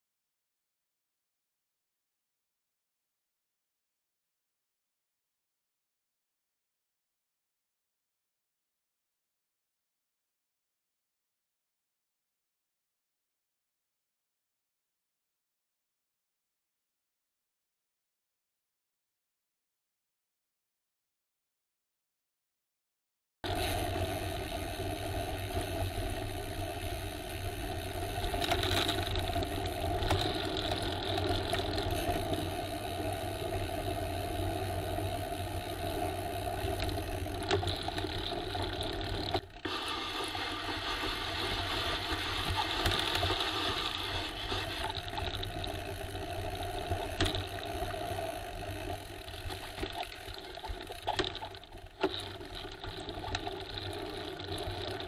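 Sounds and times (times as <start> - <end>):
bicycle rattling: 23.5 - 55.0.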